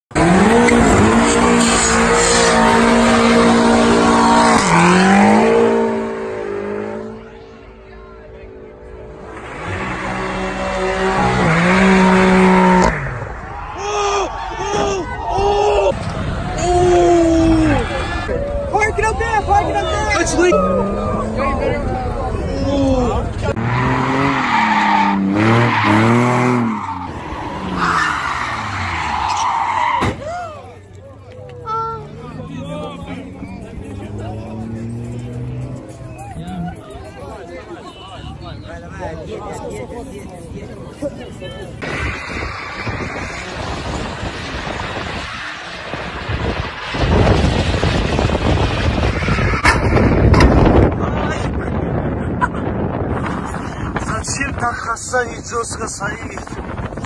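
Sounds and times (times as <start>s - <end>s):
car engine revving high: 0.1s - 7.6s, 8.6s - 13.4s, 23.5s - 29.2s
tyres squealing on pavement: 13.4s - 21.3s, 23.5s - 30.9s, 41.3s - 51.0s
tyres screeching: 23.5s - 30.4s.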